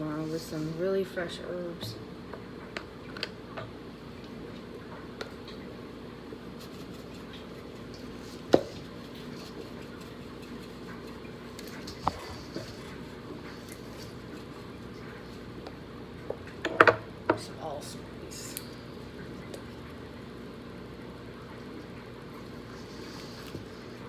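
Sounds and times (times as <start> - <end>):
steady low hum: 0.0 - 24.0
hands rubbing raw chicken: 6.5 - 15.5.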